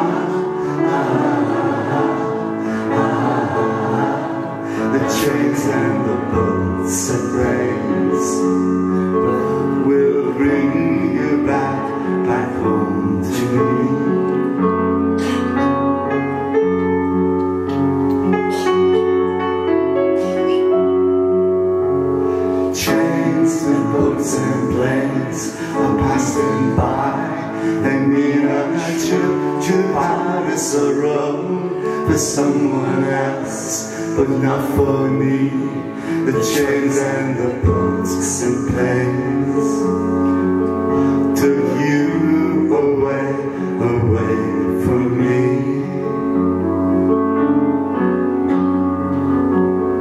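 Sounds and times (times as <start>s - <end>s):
people singing: 0.0s - 14.2s, 22.7s - 40.2s, 41.0s - 46.2s
piano and guitar ballad: 0.0s - 50.0s.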